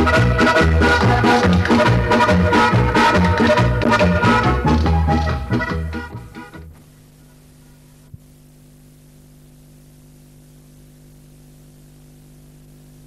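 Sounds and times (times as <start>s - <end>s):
hiss and electrical hum: 6.2s - 13.0s.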